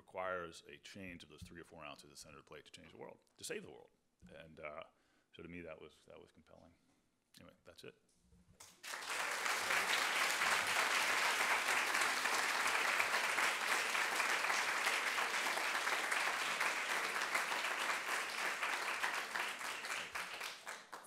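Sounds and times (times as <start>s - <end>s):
audience applauding: 8.6s - 21.0s.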